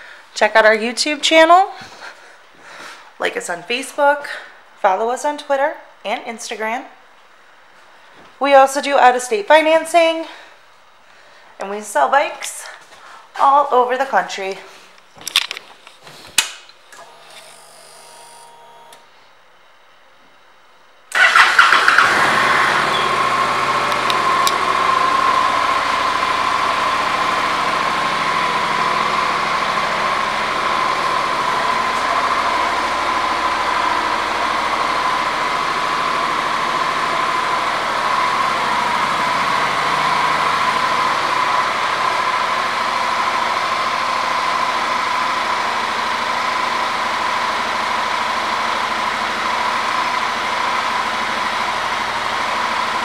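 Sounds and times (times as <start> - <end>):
motorcycle engine idling: 21.2 - 44.6.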